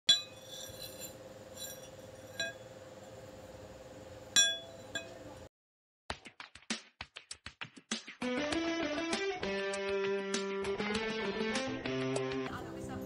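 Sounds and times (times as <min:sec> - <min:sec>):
metal clinking on anvil: 0:00.1 - 0:02.7, 0:04.4 - 0:05.2
steady low hum: 0:00.1 - 0:05.5.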